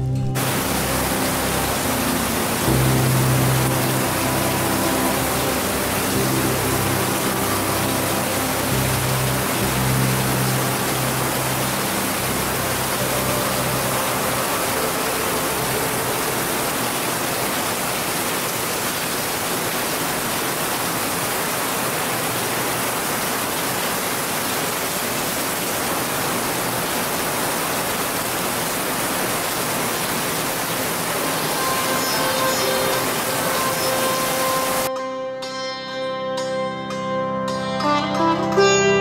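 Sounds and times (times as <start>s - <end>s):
rain falling on grass and mud: 0.4s - 34.9s.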